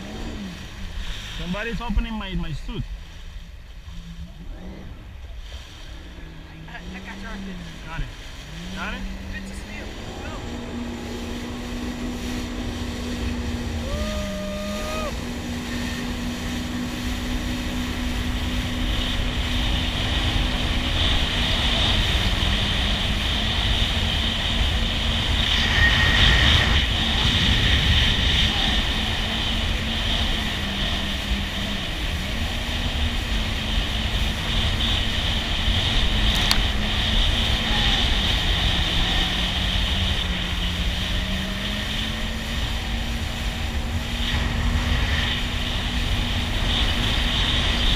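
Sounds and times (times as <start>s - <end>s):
jet ski engine running: 0.0s - 47.9s
rushing water: 0.0s - 47.9s
wind noise: 0.0s - 47.9s.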